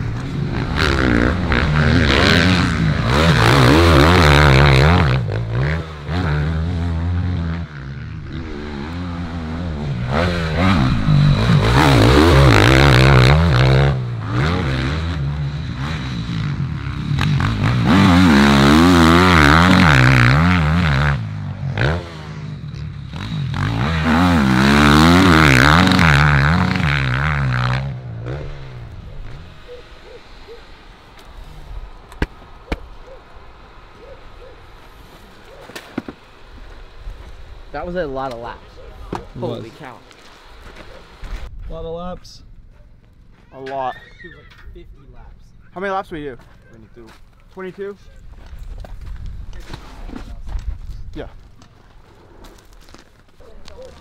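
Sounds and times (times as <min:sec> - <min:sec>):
motocross bike engines revving: 0:00.0 - 0:31.9, 0:32.6 - 0:41.5.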